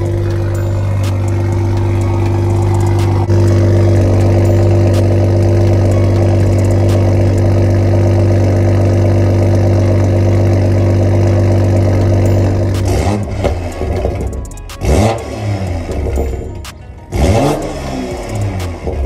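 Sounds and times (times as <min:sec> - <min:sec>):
car engine idling loudly: 0:00.0 - 0:19.0.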